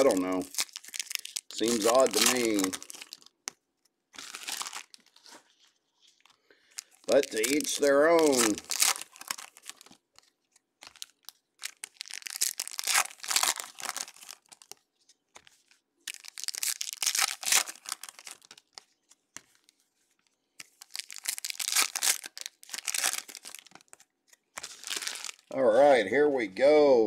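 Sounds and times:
foil wrappers tearing and crinkling: 0:00.0 - 0:03.3, 0:04.2 - 0:05.5, 0:06.7 - 0:14.8, 0:16.1 - 0:18.9, 0:20.6 - 0:25.5.

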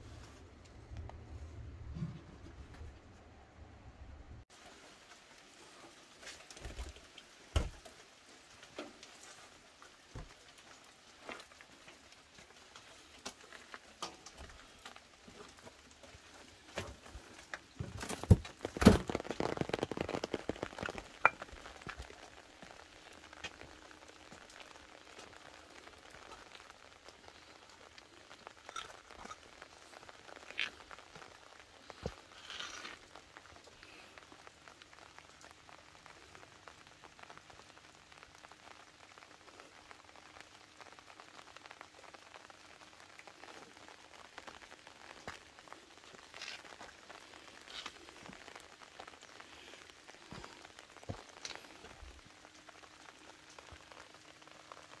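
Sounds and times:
raindrops tapping: 0:04.5 - 0:55.0
faint hiss: 0:21.2 - 0:55.0.

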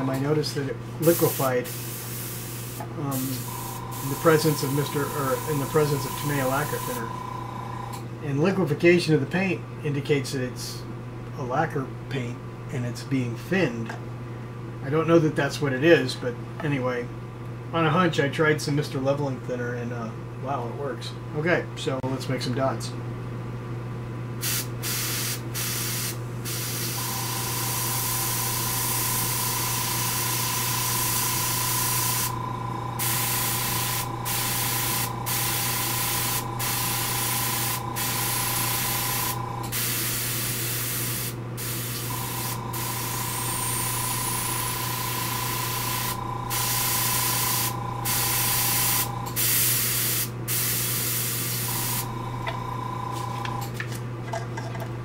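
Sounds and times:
airbrush spraying hiss: 0:01.0 - 0:07.1, 0:24.4 - 0:32.4, 0:33.0 - 0:52.1.

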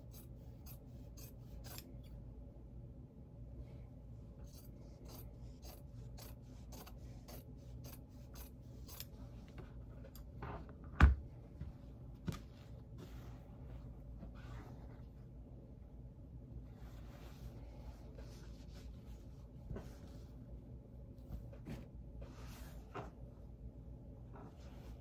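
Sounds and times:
scissors snipping fabric: 0:00.0 - 0:02.0, 0:04.4 - 0:09.2
fabric rustling: 0:16.6 - 0:20.5.

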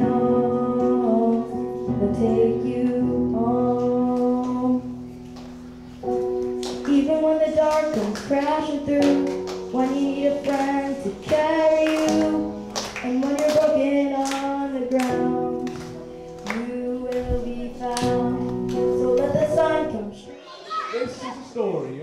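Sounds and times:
boy singing into a microphone: 0:00.0 - 0:05.0, 0:06.8 - 0:20.3.

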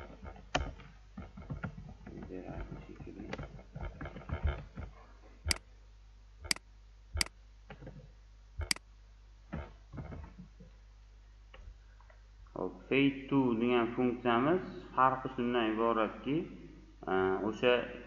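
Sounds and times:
mouse clicking: 0:08.6 - 0:08.8.

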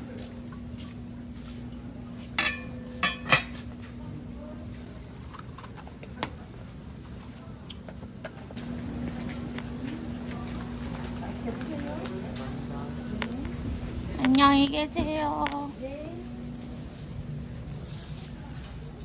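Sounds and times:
steady low hum: 0:00.0 - 0:19.0
cup clinking against bowl: 0:02.4 - 0:03.6.

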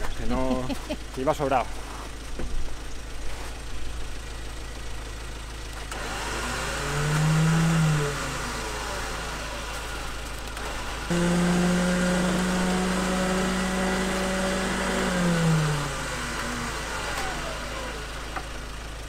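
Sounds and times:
pickup truck engine revving: 0:05.8 - 0:18.7.

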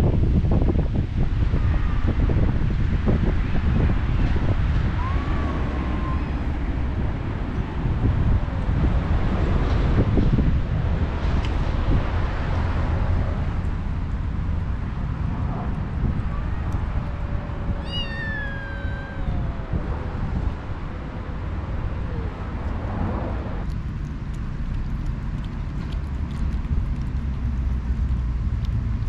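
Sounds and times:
wind on microphone: 0:00.0 - 0:29.0
cat meowing: 0:05.0 - 0:06.6, 0:16.3 - 0:20.4.

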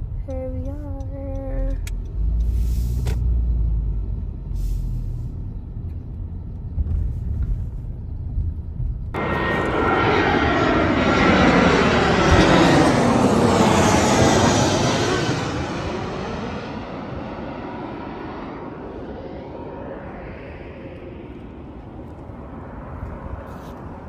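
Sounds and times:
car driving slowly: 0:00.0 - 0:09.2
jet airliner passing overhead: 0:09.0 - 0:24.0.

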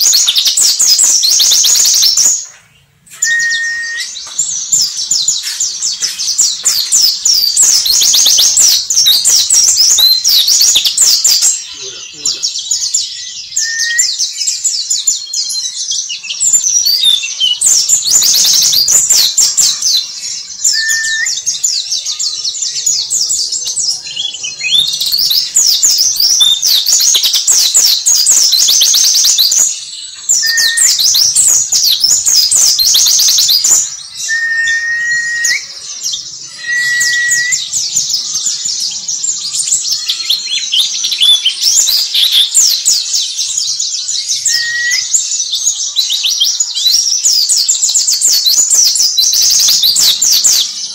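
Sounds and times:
bird twittering chirps: 0:00.0 - 0:50.9
low whistled bird notes: 0:03.1 - 0:04.2, 0:06.3 - 0:14.6, 0:20.6 - 0:21.7, 0:30.3 - 0:37.8, 0:44.4 - 0:45.3.

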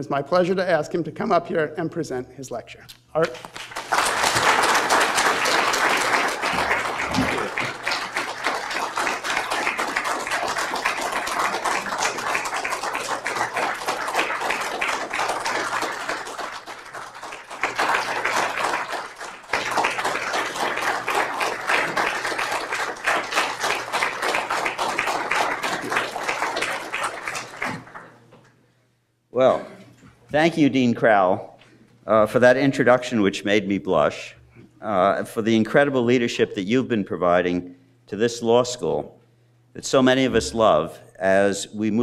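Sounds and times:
audience applauding: 0:03.4 - 0:28.2.

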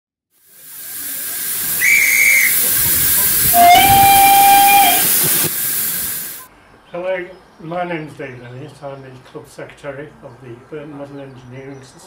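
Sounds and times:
steam hissing: 0:00.4 - 0:06.5
steam whistle blasts: 0:01.5 - 0:05.5.

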